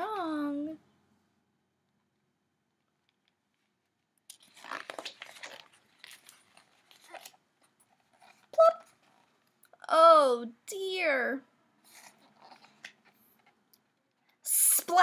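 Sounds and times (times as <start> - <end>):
book pages rustling: 3.2 - 9.6, 11.8 - 14.4.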